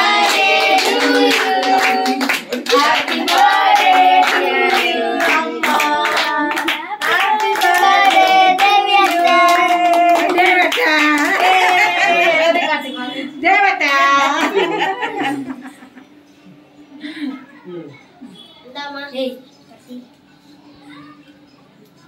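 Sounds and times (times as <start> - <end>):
people clapping in rhythm: 0.0 - 12.2
group singing: 0.0 - 12.5.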